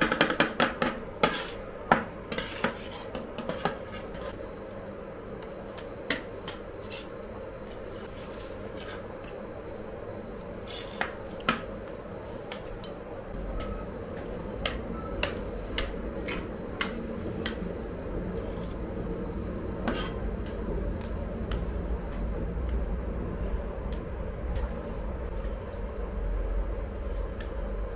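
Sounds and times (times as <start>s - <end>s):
machine hum: 4.0s - 27.9s
low rumble: 17.9s - 27.9s.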